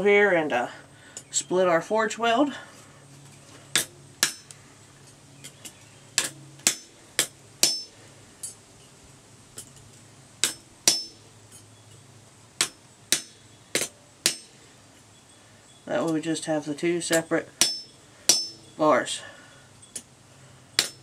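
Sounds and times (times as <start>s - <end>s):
metallic ringing: 3.3s - 9.0s, 9.6s - 21.0s
hammer striking chisel on anvil: 3.8s - 4.6s, 6.2s - 8.0s, 10.4s - 11.2s, 12.6s - 14.6s, 17.1s - 18.7s, 20.8s - 21.0s.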